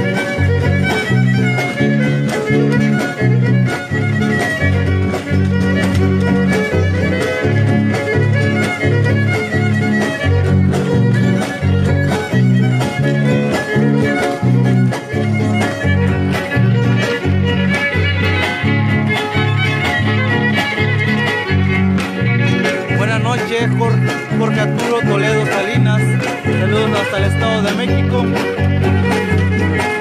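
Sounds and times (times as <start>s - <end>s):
fiddle melody: 0.0s - 30.0s
strummed guitar chords: 0.0s - 30.0s.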